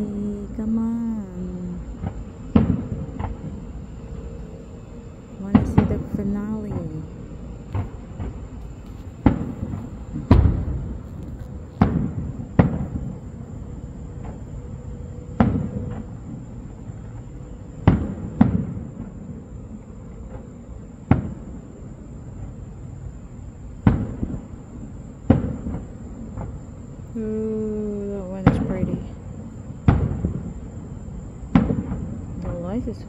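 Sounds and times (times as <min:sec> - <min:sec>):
firework shells bursting: 0:01.8 - 0:14.7, 0:15.3 - 0:19.2, 0:23.7 - 0:26.8, 0:28.4 - 0:33.0.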